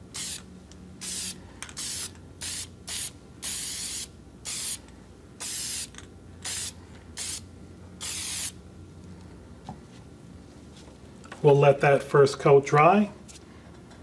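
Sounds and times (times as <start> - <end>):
aerosol spray can hissing: 0.1 - 0.4, 8.0 - 8.6.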